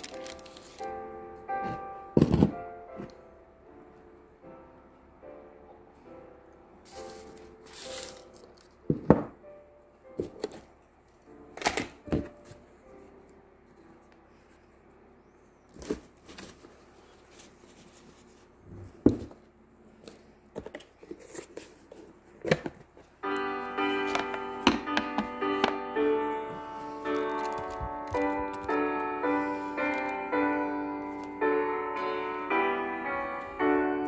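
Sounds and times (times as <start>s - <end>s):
paper or cloth rustling: 0.0s - 1.0s, 6.9s - 8.7s, 15.8s - 18.7s
soft piano music: 0.0s - 15.7s, 23.1s - 34.0s.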